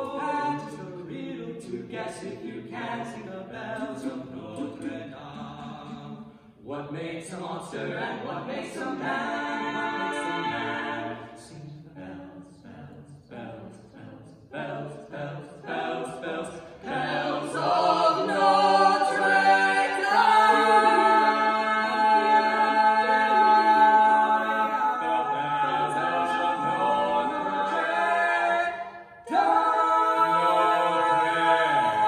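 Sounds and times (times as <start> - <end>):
barbershop quartet singing: 0.0 - 32.0.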